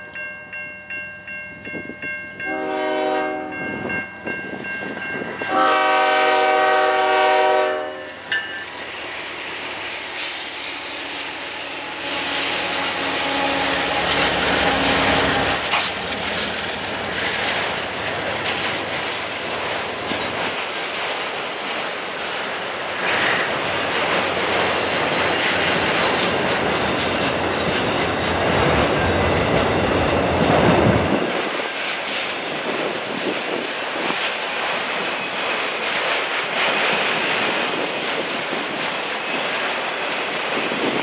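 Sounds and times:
locomotive air horn blasts: 2.5s - 3.7s, 5.5s - 8.2s, 11.8s - 14.1s
locomotives passing: 7.8s - 41.0s
train wheels clicking over rail joints: 8.2s - 41.0s.

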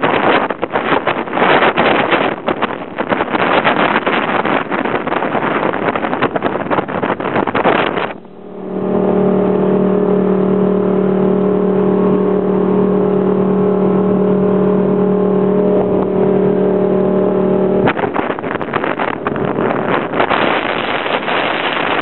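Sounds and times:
wind buffeting microphone: 0.0s - 22.0s
car engine droning: 8.0s - 20.4s.

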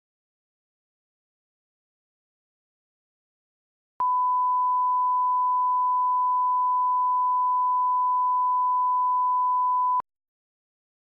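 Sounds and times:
steady reference tone beep: 4.0s - 10.0s.

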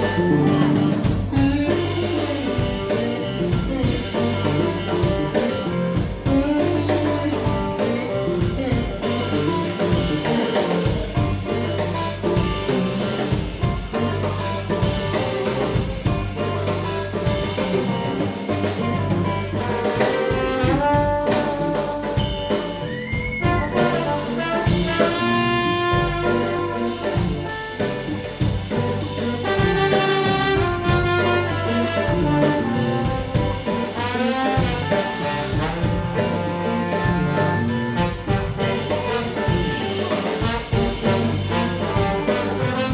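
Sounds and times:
live blues band playing: 0.0s - 42.9s
trombone held notes and slides: 16.6s - 28.2s, 28.8s - 42.9s.

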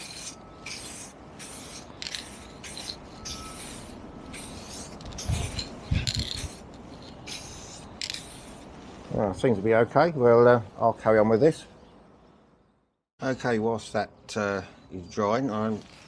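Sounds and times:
aerosol spray can hissing: 0.0s - 8.6s.

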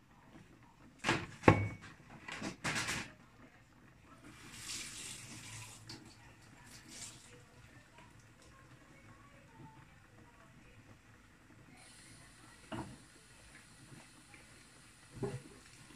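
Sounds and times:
kitchenware knocking and clinking: 1.0s - 3.1s.

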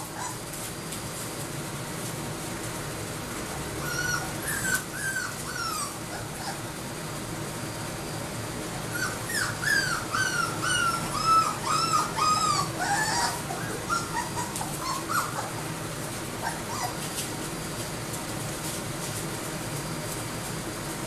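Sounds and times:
puppy whimpering: 0.0s - 0.5s, 3.8s - 6.8s, 8.9s - 15.7s, 16.4s - 17.3s.

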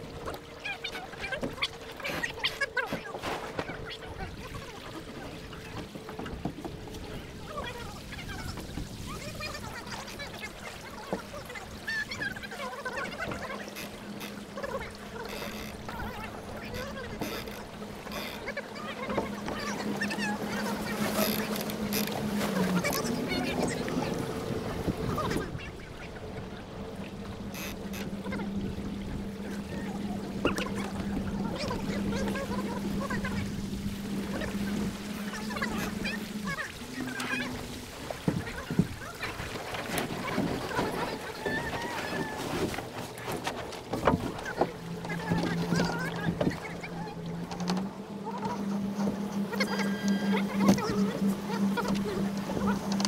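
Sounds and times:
low steady hum: 0.0s - 53.0s
water rushing along a hull: 0.0s - 53.0s
wind: 0.0s - 53.0s
steady low hum: 43.0s - 53.0s.

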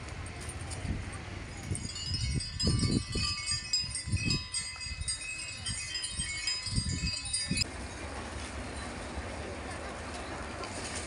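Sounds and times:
small metal bells jingling: 0.3s - 9.0s.

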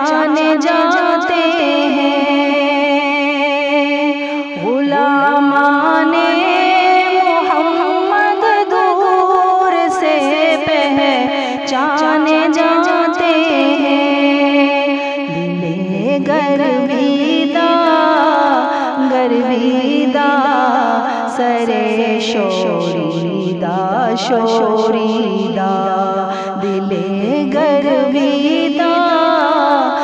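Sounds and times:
person singing ornamented melody: 0.0s - 30.0s.

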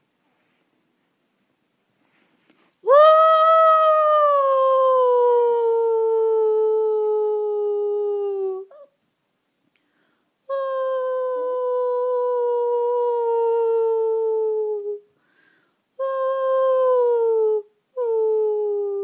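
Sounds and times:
small dog howling: 2.8s - 8.9s.

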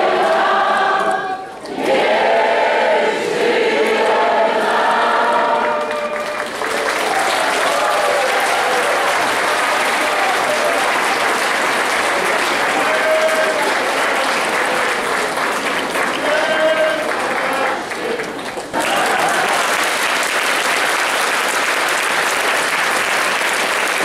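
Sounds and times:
singing: 0.0s - 11.3s, 11.9s - 19.7s
crowd applauding: 4.6s - 24.0s.

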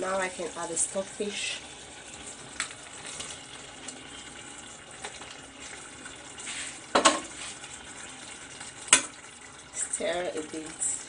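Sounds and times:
soup simmering with sizzle: 0.0s - 11.0s
knocks against a pot: 6.9s - 7.3s.

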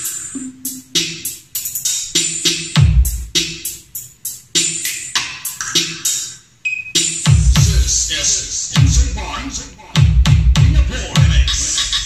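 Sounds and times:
drum machine beat: 0.0s - 12.0s
electronic bass track: 2.4s - 3.8s, 7.3s - 12.0s
deep bass drop: 7.3s - 11.6s.

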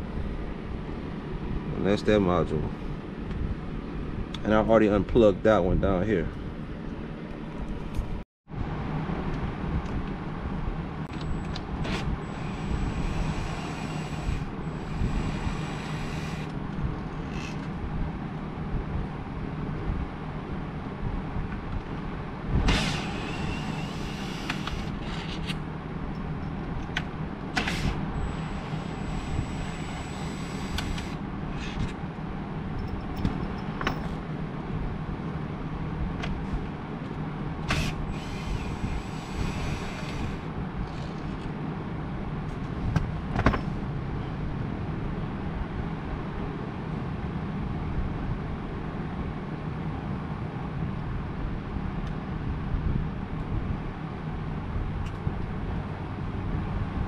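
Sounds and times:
low hum and noise: 0.0s - 57.0s
cordless drill: 11.5s - 16.6s, 17.2s - 17.7s, 22.7s - 25.6s, 27.6s - 31.8s, 37.7s - 41.0s
tools clicking and knocking: 32.8s - 34.2s.

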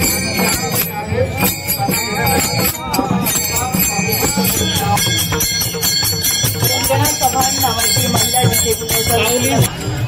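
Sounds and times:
hand cymbals jingling: 0.0s - 10.0s.

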